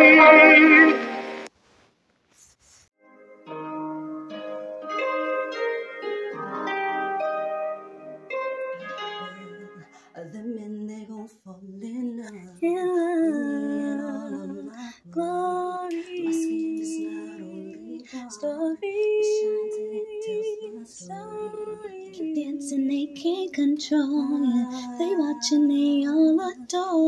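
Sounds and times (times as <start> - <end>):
woman singing with vibrato: 0.0 - 1.4, 8.8 - 27.0.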